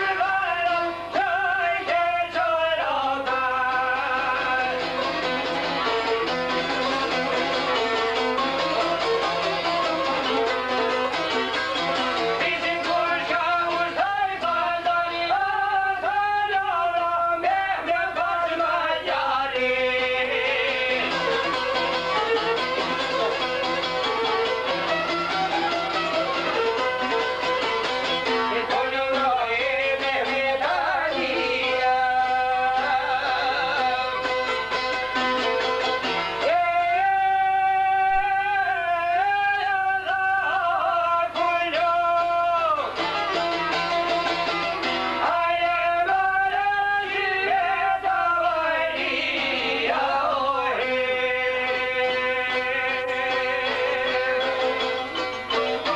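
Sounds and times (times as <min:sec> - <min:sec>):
plucked long-necked lutes: 0:00.0 - 0:55.9
man singing held notes: 0:36.4 - 0:42.9.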